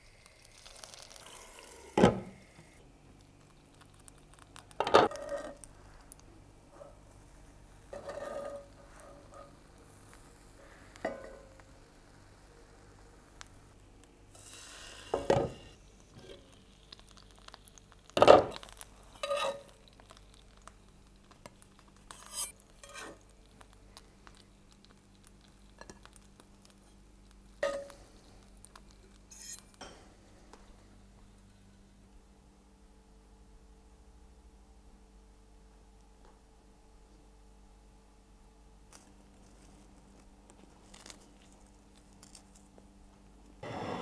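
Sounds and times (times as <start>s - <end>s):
low steady hum: 0.0s - 44.0s.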